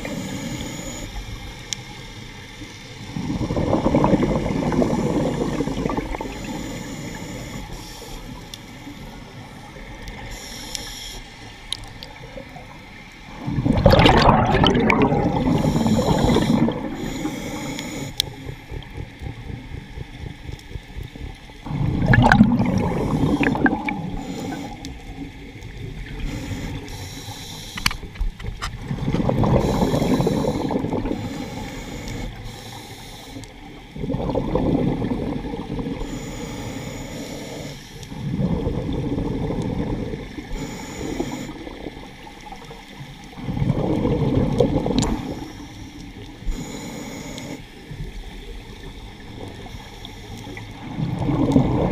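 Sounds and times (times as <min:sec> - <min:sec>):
exhaled bubbles gurgling: 0:02.9 - 0:10.5, 0:11.5 - 0:51.9
diver breathing through regulator: 0:03.2 - 0:09.0, 0:10.2 - 0:11.3, 0:13.5 - 0:25.2, 0:26.1 - 0:28.1, 0:29.2 - 0:34.6, 0:35.8 - 0:41.8, 0:44.7 - 0:47.7.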